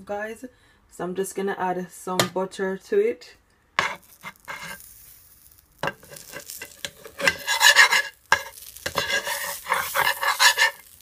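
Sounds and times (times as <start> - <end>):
metal spoon scraping a frying pan: 3.8 - 5.1, 5.8 - 11.0
butter sizzling: 3.8 - 11.0.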